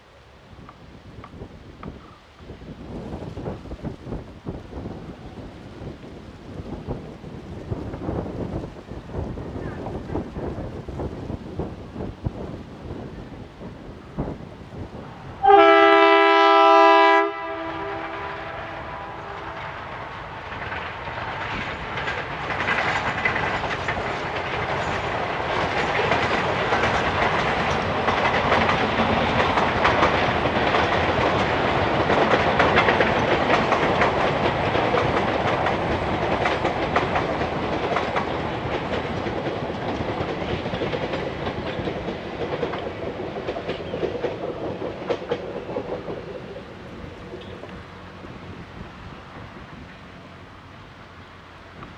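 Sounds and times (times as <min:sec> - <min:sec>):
locomotive horn blaring: 0:15.4 - 0:19.6
train wheels clattering over rail joints: 0:17.7 - 0:48.6.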